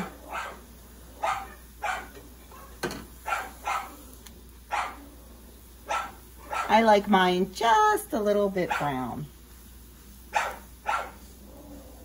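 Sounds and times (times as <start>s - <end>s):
dogs barking: 0.0s - 6.8s, 8.7s - 9.1s, 10.3s - 12.0s.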